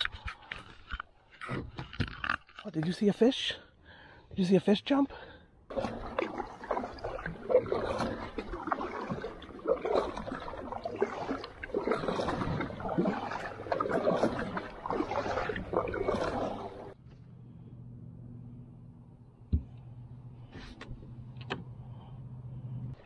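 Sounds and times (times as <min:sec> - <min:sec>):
kayak paddle splashing: 0:05.7 - 0:17.0
water washing along hull: 0:05.7 - 0:17.0.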